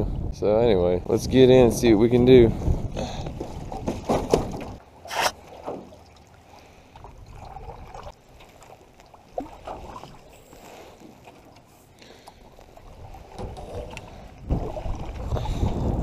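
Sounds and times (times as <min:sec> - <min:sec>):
water trickling and lapping: 0:02.6 - 0:16.0
knocks in aluminum canoe: 0:03.4 - 0:04.8.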